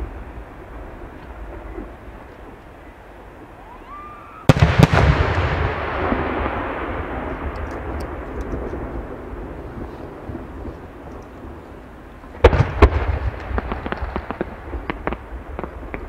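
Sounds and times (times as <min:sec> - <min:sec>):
small firework crackles: 0:00.0 - 0:16.0
firework rising whistle: 0:02.8 - 0:05.8
rolling echo: 0:03.7 - 0:16.0.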